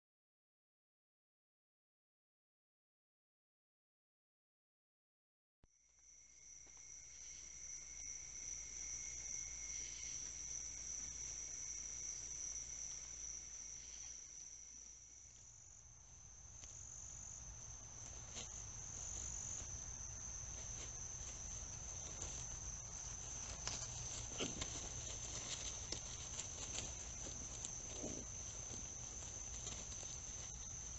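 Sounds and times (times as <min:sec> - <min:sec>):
crickets trilling: 0:05.7 - 0:30.9
lower steady tone: 0:05.7 - 0:30.9.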